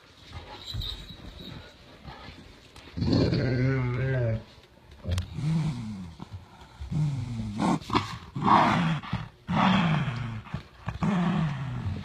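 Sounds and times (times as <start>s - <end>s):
dogs growling: 2.9s - 4.4s, 5.1s - 12.0s.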